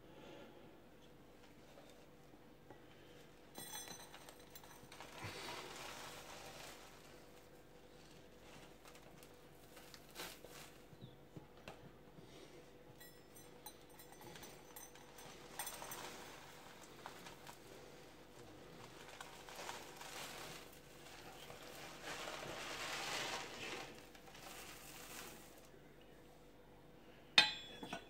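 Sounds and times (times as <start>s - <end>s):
dry flakes rustling and scraping: 3.6s - 11.3s, 14.1s - 25.9s.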